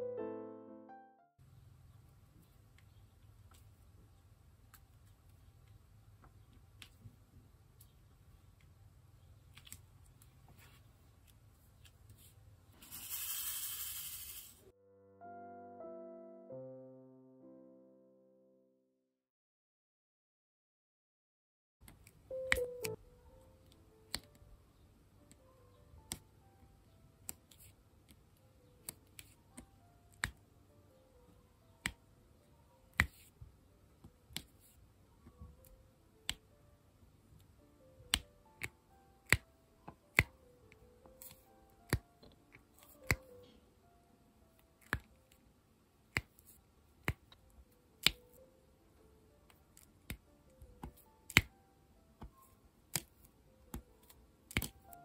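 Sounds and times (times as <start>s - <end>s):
soft music: 0.0s - 1.5s, 9.5s - 19.0s, 21.8s - 55.0s
pen clicking plastic beads: 12.8s - 14.6s, 52.2s - 55.0s.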